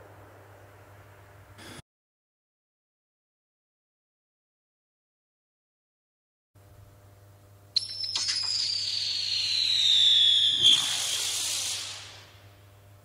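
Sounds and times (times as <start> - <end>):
firework whistle sliding downward: 7.8 - 12.4
hissing burst: 8.2 - 12.6.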